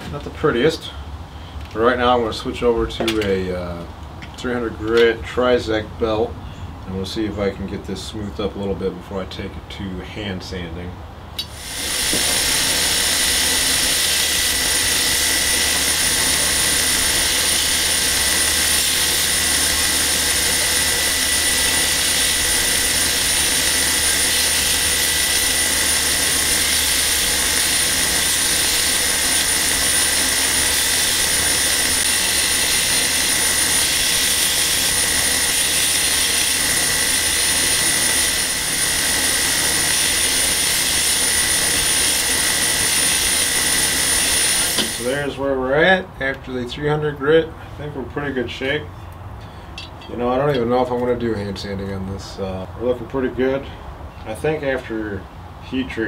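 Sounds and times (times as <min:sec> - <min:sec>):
belt grinder grinding steel blade: 0:11.4 - 0:45.3.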